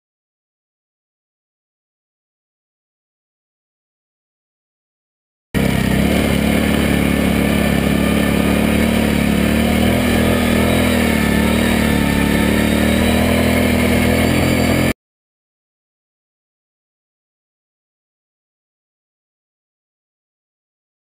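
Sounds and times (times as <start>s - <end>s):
quad bike engine running: 5.6s - 15.0s.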